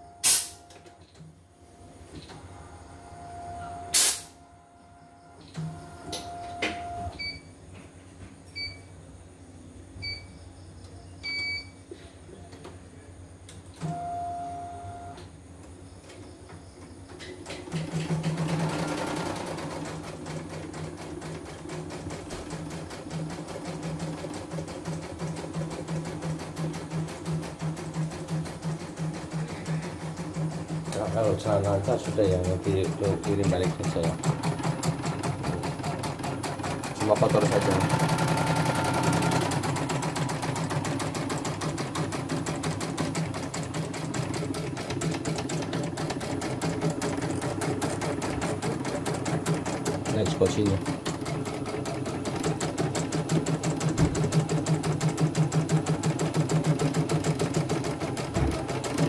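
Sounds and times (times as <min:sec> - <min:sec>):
embroidery machine stitching rattle: 0:17.4 - 0:59.0.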